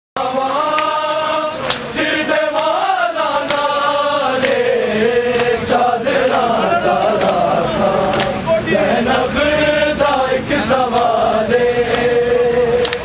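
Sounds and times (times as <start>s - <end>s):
men chanting in unison: 0.2s - 13.0s
hands slapping chests: 1.6s - 1.9s, 3.4s - 3.7s.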